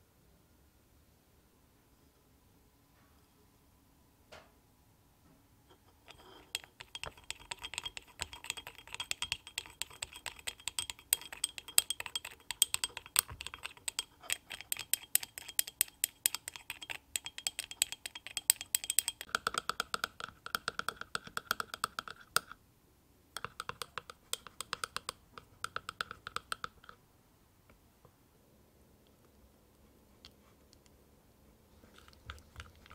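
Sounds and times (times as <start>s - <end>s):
wire whisk clicking against bowl: 6.1s - 22.2s, 23.4s - 26.9s.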